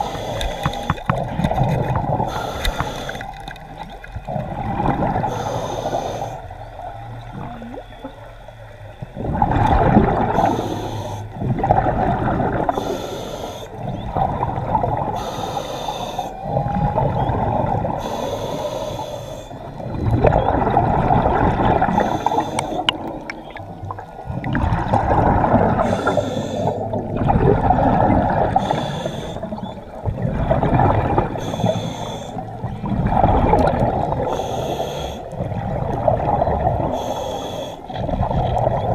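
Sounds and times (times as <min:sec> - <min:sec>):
water sloshing and gurgling: 0:00.0 - 0:38.9
heavy breathing: 0:15.2 - 0:16.5, 0:18.0 - 0:19.6, 0:25.8 - 0:26.9, 0:28.6 - 0:29.5.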